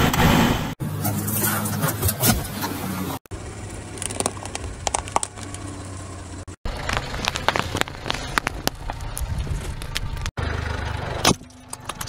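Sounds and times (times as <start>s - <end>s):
low engine hum: 0.8s - 12.0s
plastic cups crackling under tyre: 3.7s - 10.3s.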